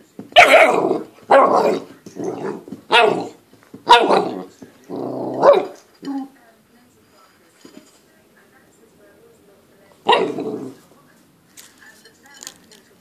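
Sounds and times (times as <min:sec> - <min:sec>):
puppy barking: 0:00.4 - 0:04.5, 0:05.3 - 0:05.8, 0:10.0 - 0:10.6.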